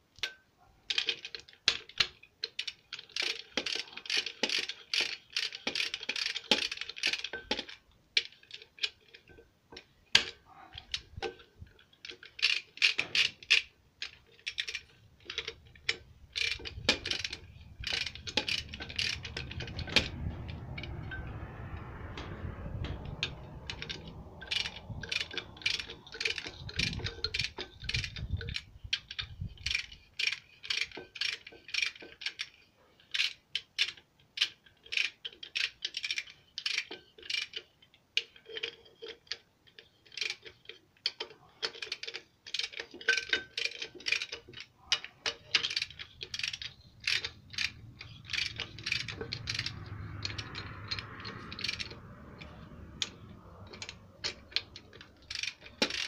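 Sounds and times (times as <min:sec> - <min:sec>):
socket ratchet clicking: 0:12.1 - 0:21.4, 0:22.3 - 0:32.5, 0:45.4 - 0:56.0.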